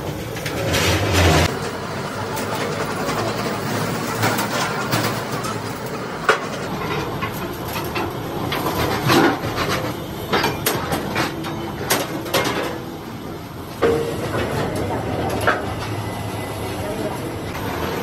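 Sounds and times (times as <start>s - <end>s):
workshop background noise: 0.0s - 18.0s
steel clanks and knocks: 4.1s - 12.9s.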